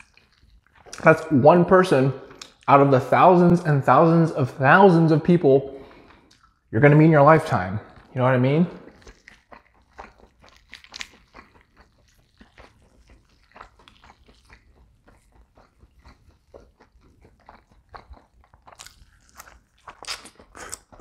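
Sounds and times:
wet chewing and tearing: 0.0 - 1.4, 2.2 - 2.8, 5.7 - 6.7, 7.4 - 21.0.

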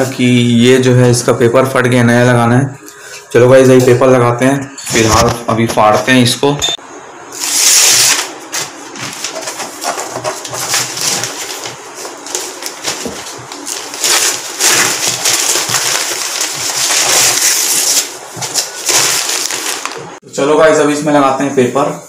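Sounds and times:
newspaper tearing: 7.4 - 20.0
paper rustling and crinkling: 7.4 - 20.2.

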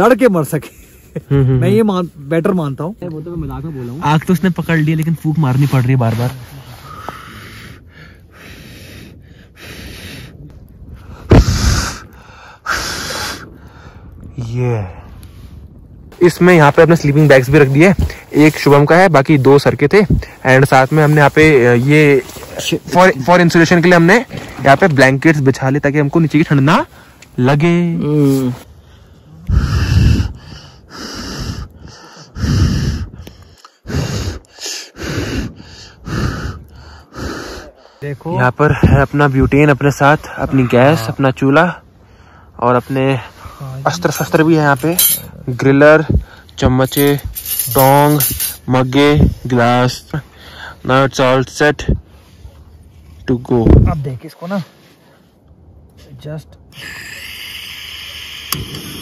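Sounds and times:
person blowing on a campfire: 11.2 - 13.7, 29.3 - 37.7, 56.7 - 59.0.

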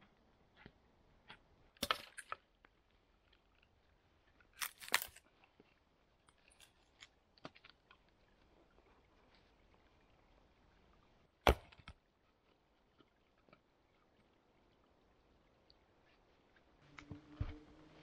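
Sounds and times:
wood cracking and splintering: 4.4 - 5.7.

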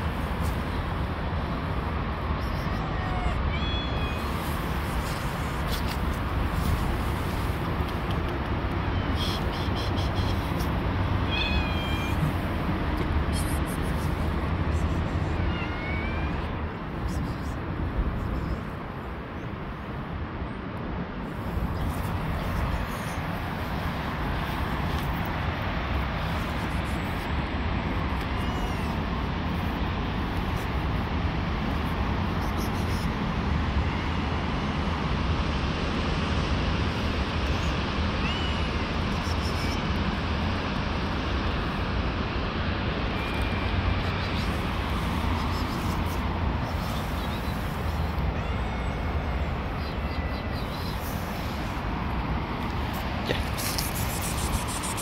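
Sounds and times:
outdoor rumble and hiss: 0.0 - 55.0
faint high chirp: 49.7 - 51.1.

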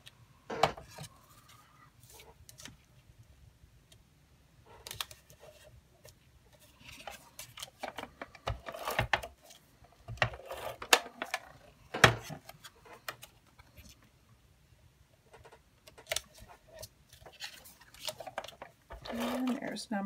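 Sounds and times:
paper handling: 15.9 - 19.8.

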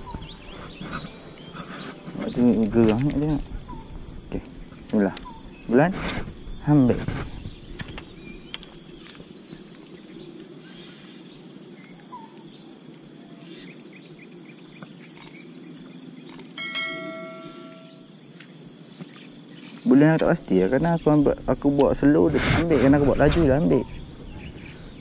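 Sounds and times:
insects: 0.0 - 25.0
bell-like chime: 16.6 - 18.1.

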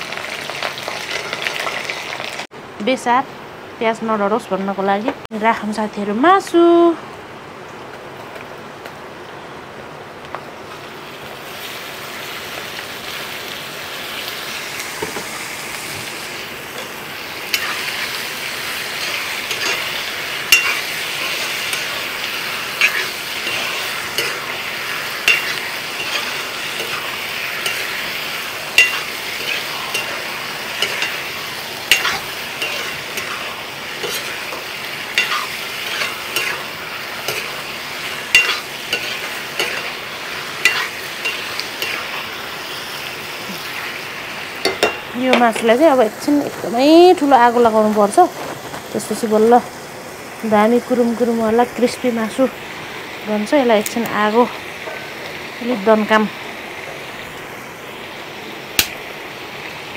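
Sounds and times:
chicken sizzling in hot oil: 0.0 - 2.5, 10.6 - 59.9
metal spatula clinking on pot: 20.5 - 20.8, 25.2 - 27.0, 27.6 - 27.9, 28.8 - 30.2, 30.8 - 31.2, 31.9 - 33.4, 35.2 - 36.6, 38.3 - 39.9, 40.6 - 42.0, 44.6 - 45.7.

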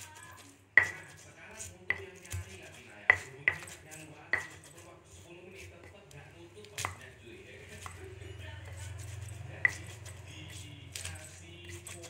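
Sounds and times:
stone pestle pounding in mortar: 0.0 - 12.0.

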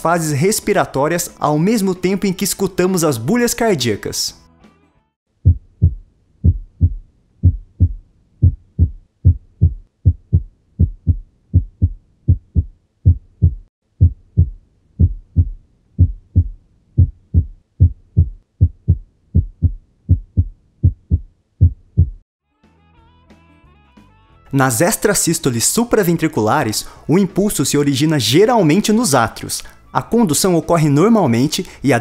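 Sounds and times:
heartbeat thumps: 5.4 - 22.2.

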